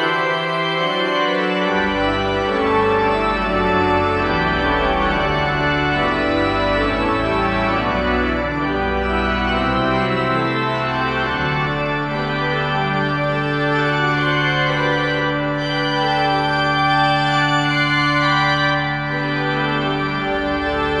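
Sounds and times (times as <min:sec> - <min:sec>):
church organ chords: 0:00.0 - 0:21.0
deep organ pedal bass: 0:00.0 - 0:21.0.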